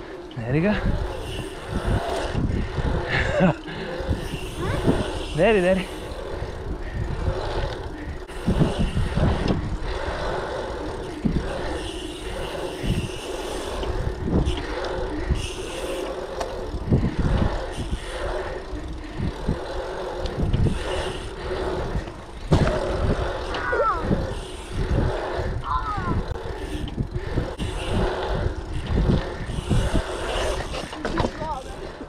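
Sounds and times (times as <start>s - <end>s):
bicycle tyres rolling on asphalt: 0.0s - 32.0s
wind buffeting microphone: 0.0s - 32.0s.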